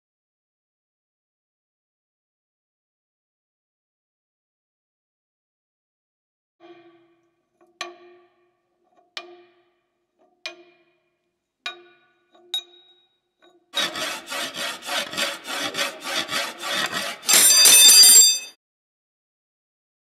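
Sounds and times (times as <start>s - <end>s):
file rasping on metal bars: 13.8s - 18.5s
loud ringing scrape: 13.8s - 18.5s.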